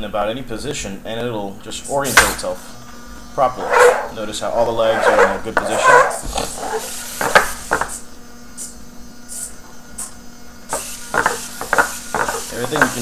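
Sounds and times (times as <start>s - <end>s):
robot legs clicking on desk: 10.7s - 13.0s.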